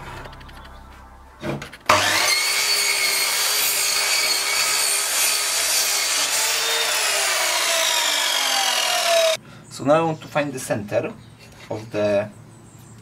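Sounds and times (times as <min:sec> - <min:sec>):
mitre saw cutting wood: 0:01.9 - 0:09.4.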